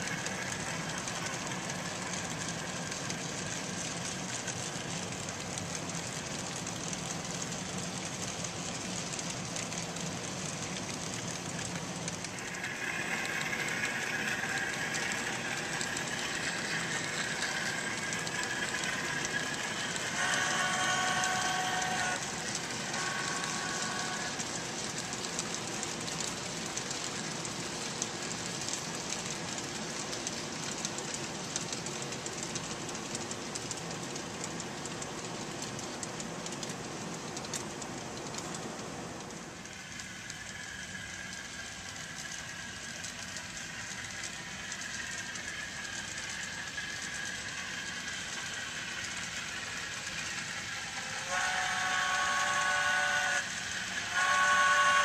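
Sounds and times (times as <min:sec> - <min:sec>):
model train cars rolling: 0:00.0 - 0:55.0
wheel clicks over rail joints: 0:00.0 - 0:55.0
model steam whistle: 0:12.6 - 0:24.6, 0:51.0 - 0:55.0.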